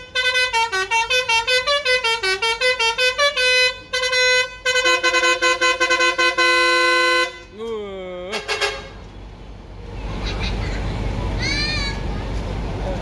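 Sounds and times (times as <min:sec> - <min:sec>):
rapid air horn chord blasts: 0:00.0 - 0:07.5, 0:08.3 - 0:09.0
bus air horn playing a tune: 0:00.0 - 0:07.6, 0:08.3 - 0:09.0.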